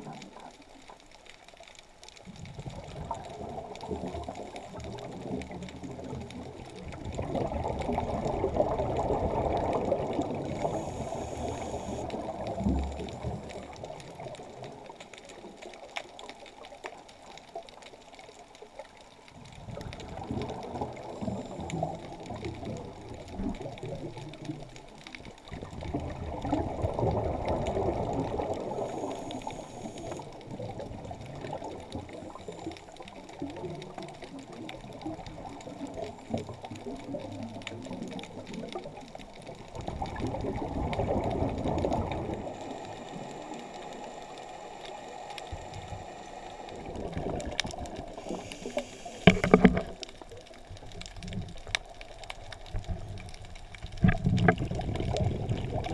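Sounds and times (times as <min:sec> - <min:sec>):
exhaled bubbles rumbling underwater: 0:00.0 - 0:55.9
short high hiss: 0:48.2 - 0:49.7.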